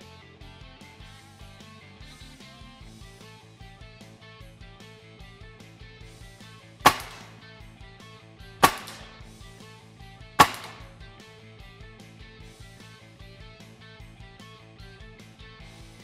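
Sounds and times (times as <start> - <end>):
air rifle shots: 6.9 - 7.5, 8.6 - 9.2, 10.4 - 11.0.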